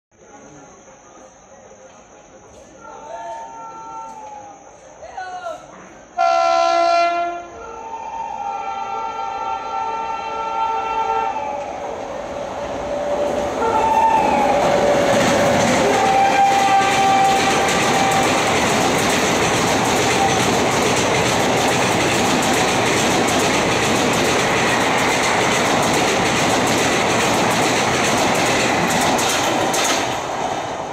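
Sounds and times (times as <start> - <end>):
train rumbling rush: 2.4 - 30.9
train horn: 6.2 - 11.6, 13.6 - 15.0, 15.8 - 18.6
wheels clacking over rail joints: 14.5 - 30.9.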